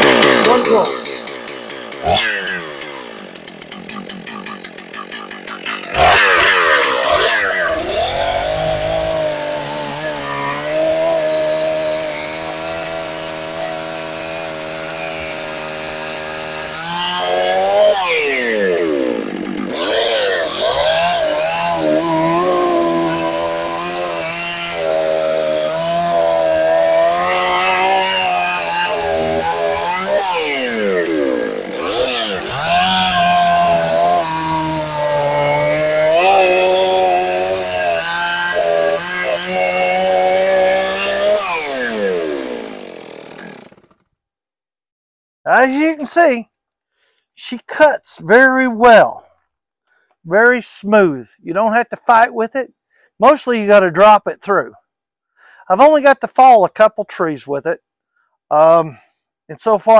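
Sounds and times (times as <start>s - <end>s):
chainsaw cutting log: 0.0s - 44.1s.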